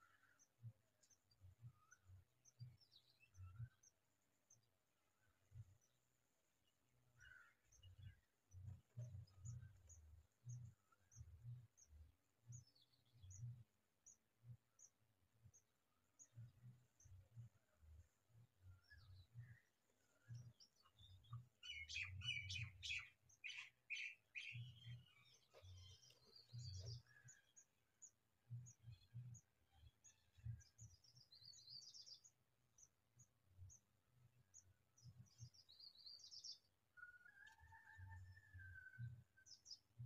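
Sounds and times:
sparrows chirping: 16.1s - 36.7s.

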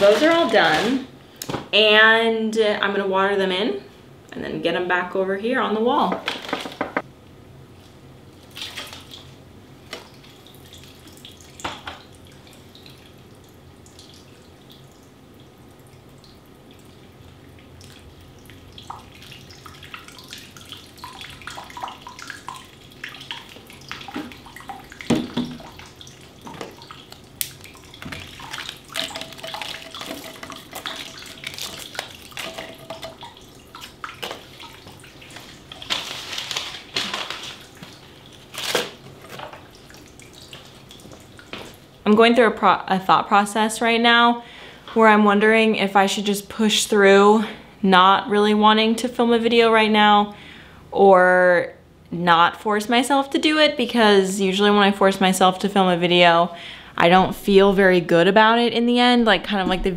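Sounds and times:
water trickling from watering can: 10.1s - 36.4s.

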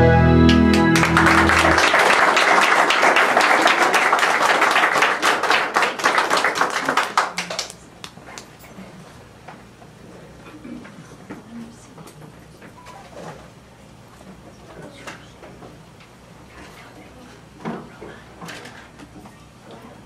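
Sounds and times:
music chord: 0.0s - 2.0s
audience applauding: 0.4s - 8.4s.

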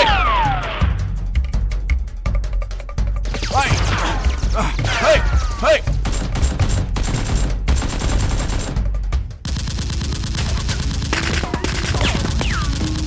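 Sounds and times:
background music: 0.0s - 13.0s
automatic gunfire bursts: 6.0s - 13.0s.

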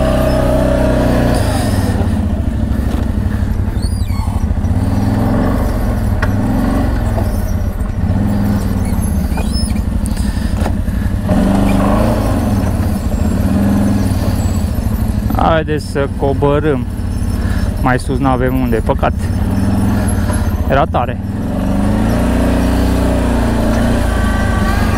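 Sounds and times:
atv engine revving: 0.0s - 24.9s.

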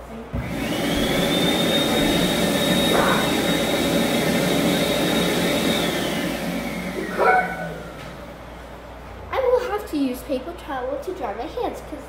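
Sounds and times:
electric hand dryer blowing: 0.3s - 8.4s.

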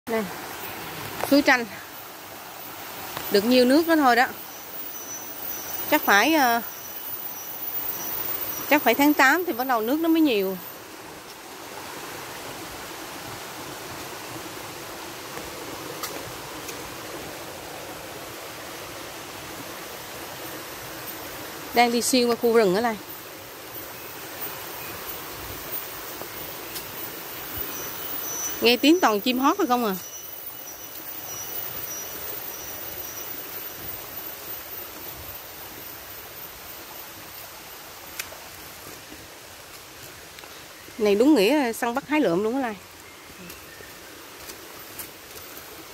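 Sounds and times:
stream flowing over rocks: 0.1s - 45.9s
faint high chirp: 23.8s - 35.2s.

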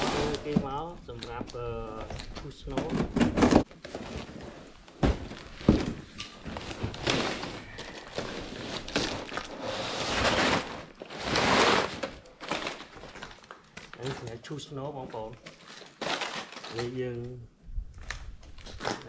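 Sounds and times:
packing paper crumpling: 10.6s - 17.2s.

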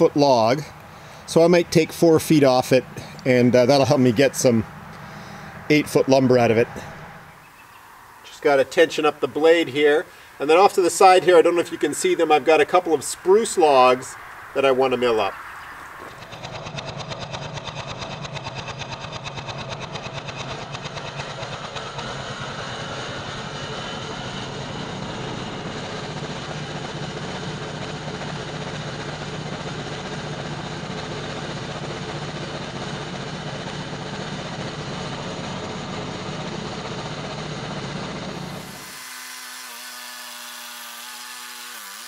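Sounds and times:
small gas engine running: 0.0s - 7.4s, 14.6s - 42.0s
bandsaw blade cutting log: 16.0s - 18.6s, 19.2s - 42.0s.

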